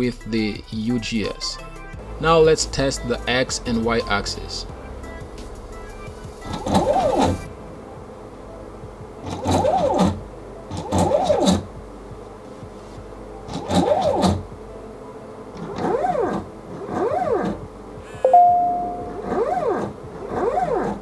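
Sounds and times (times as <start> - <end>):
short steady tone: 18.2 - 19.3.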